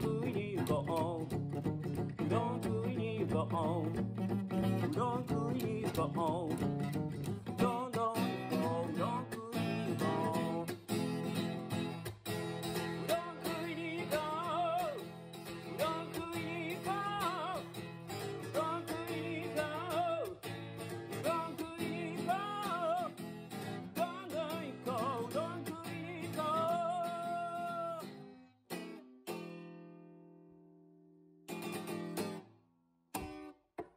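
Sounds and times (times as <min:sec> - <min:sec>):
person singing: 0:00.0 - 0:10.8, 0:13.0 - 0:20.4, 0:21.1 - 0:28.2
strummed acoustic guitar: 0:00.0 - 0:33.9.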